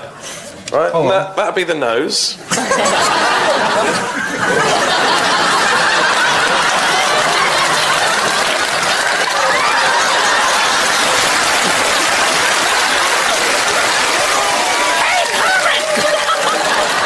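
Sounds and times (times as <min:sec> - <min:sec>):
audience laughing: 0:02.5 - 0:17.0
audience applauding: 0:04.4 - 0:17.0.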